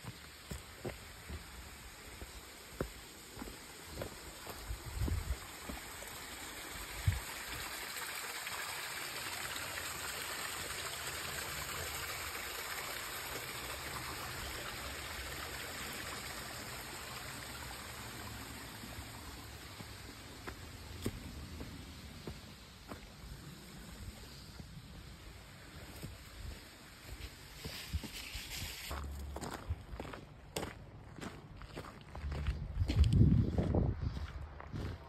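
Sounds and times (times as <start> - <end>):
stream splashing over rocks: 0.0 - 24.2.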